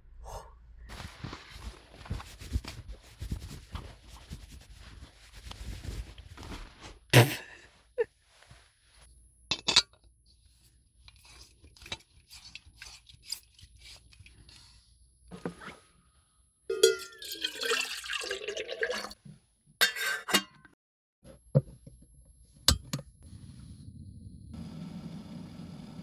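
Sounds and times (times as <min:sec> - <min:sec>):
jacket rustling and scraping: 0:00.9 - 0:07.1.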